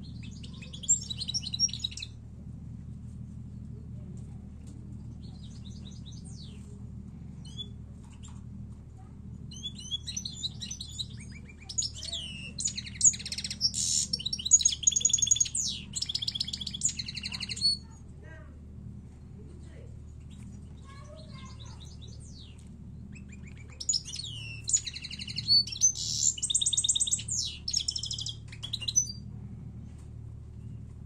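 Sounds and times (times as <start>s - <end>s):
finch singing: 0.0s - 2.2s, 5.0s - 6.8s, 7.4s - 8.4s, 9.5s - 17.9s, 20.1s - 29.3s
steady low hum: 0.0s - 31.0s.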